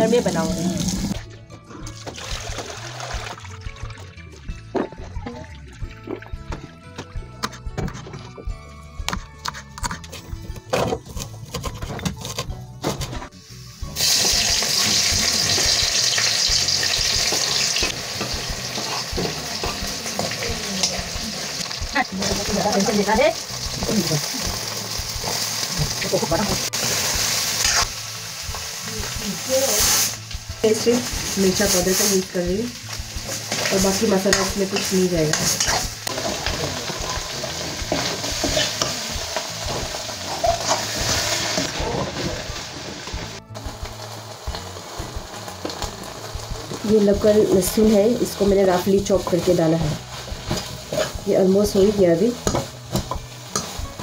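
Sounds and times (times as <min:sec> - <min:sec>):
food sizzling in hot oil: 0:13.3 - 0:54.0
metal spatula scraping a wok: 0:33.3 - 0:42.7, 0:49.2 - 0:51.3.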